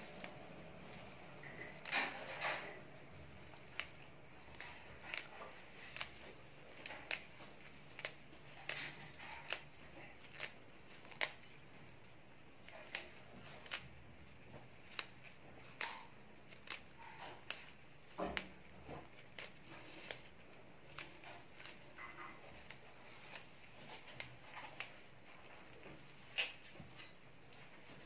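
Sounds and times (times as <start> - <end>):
scissors snipping leaves: 0.0 - 26.7.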